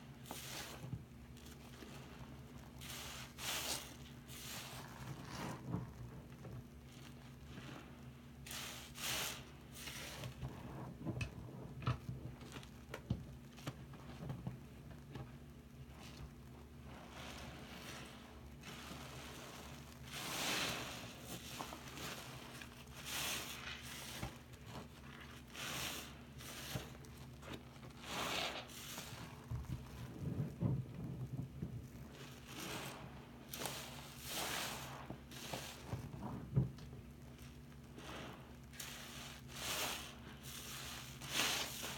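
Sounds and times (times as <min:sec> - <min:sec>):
sponge squelching in soapy water: 0:00.0 - 0:41.9
foam hissing: 0:08.5 - 0:10.2, 0:18.6 - 0:24.5, 0:25.4 - 0:27.0, 0:28.0 - 0:29.5, 0:32.4 - 0:36.0, 0:37.9 - 0:41.9.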